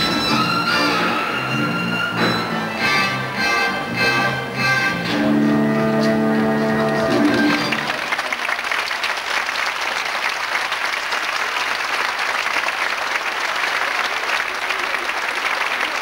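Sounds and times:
large audience applauding: 0:05.2 - 0:16.0.

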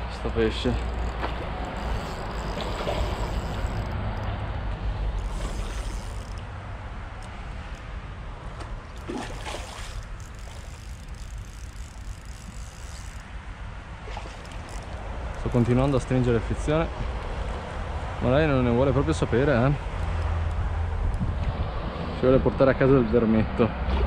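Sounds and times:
wind rumbling on microphone: 0:00.0 - 0:23.1
fish splashing at surface: 0:05.2 - 0:06.2, 0:08.8 - 0:11.2, 0:14.0 - 0:14.7.

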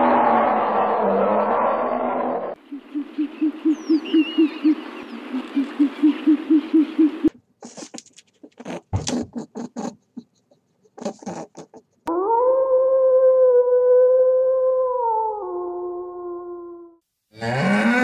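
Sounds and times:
owl hooting: 0:02.6 - 0:07.3
faint bird chirps: 0:02.7 - 0:07.1.

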